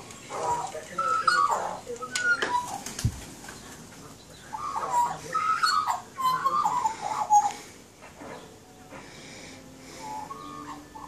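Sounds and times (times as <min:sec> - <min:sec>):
magpies warbling: 0:00.2 - 0:02.9, 0:04.3 - 0:07.7, 0:09.9 - 0:11.0.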